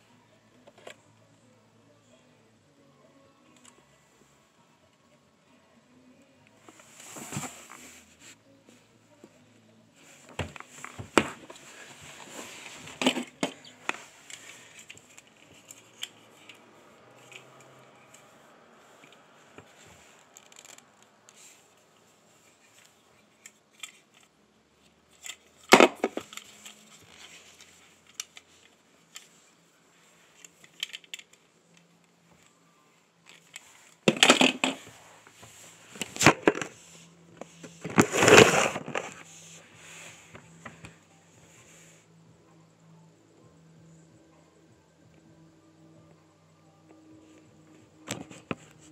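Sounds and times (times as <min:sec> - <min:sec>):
rustling: 0:06.6 - 0:08.4.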